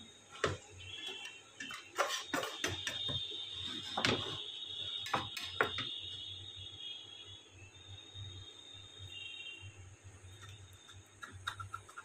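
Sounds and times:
metal spatula scraping frying pan: 0:01.1 - 0:04.4.

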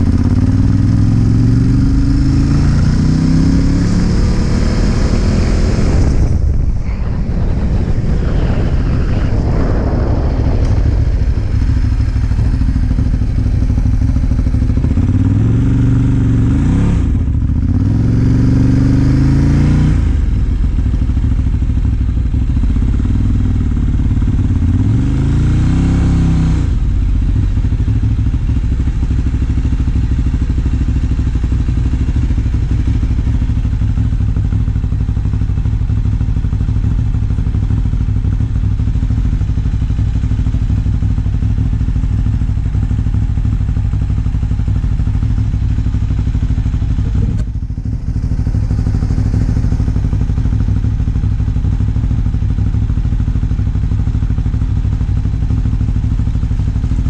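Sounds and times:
motorcycle engine revving: 0:00.0 - 0:57.0
wind on microphone: 0:03.8 - 0:15.0.

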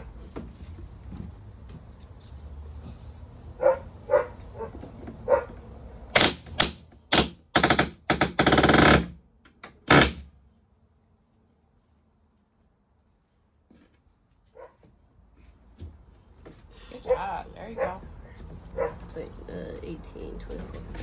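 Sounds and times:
pneumatic nailer hammering: 0:06.1 - 0:10.3.

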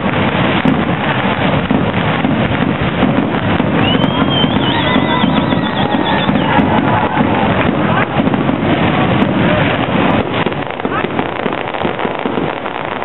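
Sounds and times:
fireworks bursting: 0:00.0 - 0:13.0
crowd chatter: 0:03.0 - 0:13.0
high warbling firework whistle: 0:03.0 - 0:13.0.

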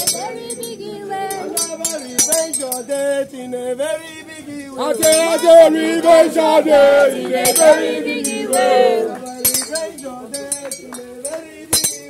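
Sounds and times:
person singing over music: 0:04.8 - 0:12.0.

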